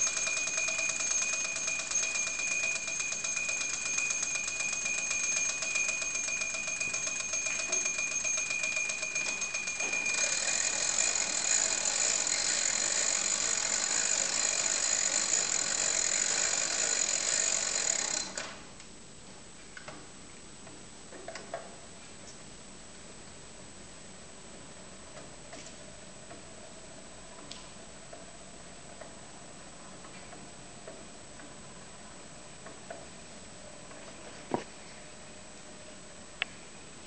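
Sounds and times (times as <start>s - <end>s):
clockwork bell ringing: 0.0s - 18.4s.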